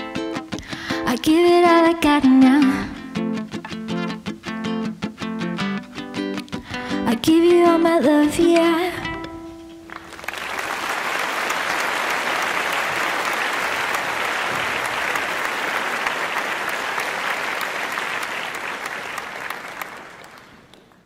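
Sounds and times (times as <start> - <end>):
applause: 9.9 - 21.0.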